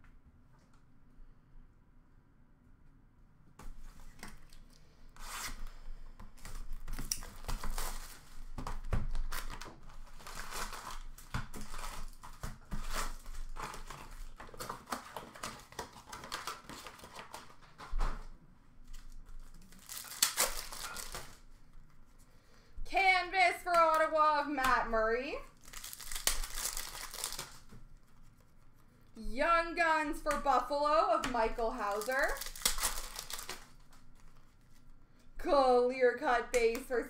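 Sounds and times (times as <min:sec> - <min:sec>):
foil packs crinkling and rustling: 0:05.3 - 0:22.1, 0:25.4 - 0:28.4, 0:31.4 - 0:35.0
packs tearing open: 0:06.3 - 0:18.2, 0:18.9 - 0:21.4, 0:25.5 - 0:27.7, 0:31.9 - 0:34.4.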